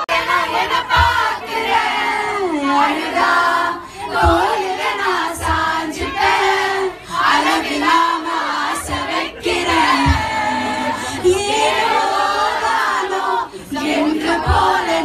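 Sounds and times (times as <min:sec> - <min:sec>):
women singing together: 0:00.0 - 0:15.0
low thumps: 0:04.1 - 0:06.7, 0:07.4 - 0:12.6.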